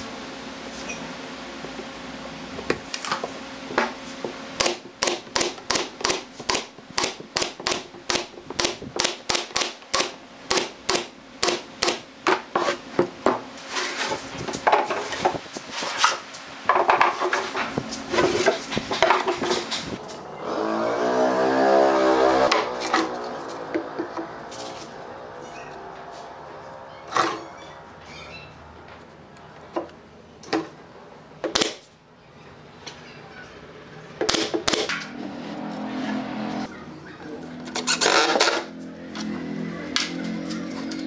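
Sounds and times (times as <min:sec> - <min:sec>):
nail gun firing sharp shots: 0:04.6 - 0:12.0, 0:34.3 - 0:35.0.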